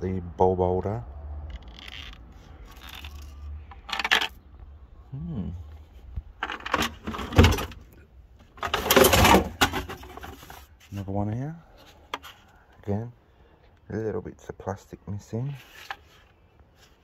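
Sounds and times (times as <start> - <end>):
plastic parts clattering: 1.8 - 4.4, 6.4 - 7.8, 8.6 - 10.7.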